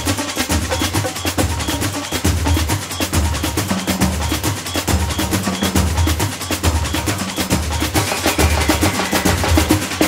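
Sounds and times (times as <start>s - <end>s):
drum-driven parade music: 0.0s - 10.0s.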